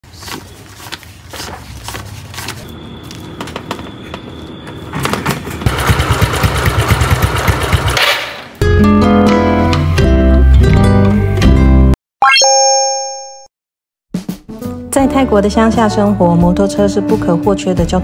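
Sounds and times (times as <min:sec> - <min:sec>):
motorcycle engine running: 0:05.7 - 0:08.0.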